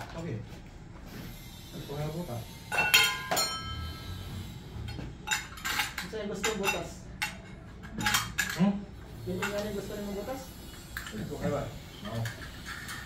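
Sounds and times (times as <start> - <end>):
hard objects clinking and clattering: 4.9 - 8.7.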